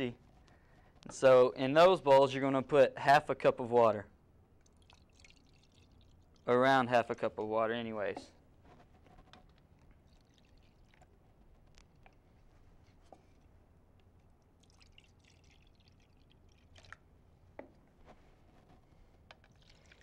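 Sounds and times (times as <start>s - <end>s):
water trickling into plastic cup: 4.6s - 6.5s, 9.7s - 12.3s, 14.1s - 17.1s, 19.3s - 20.0s.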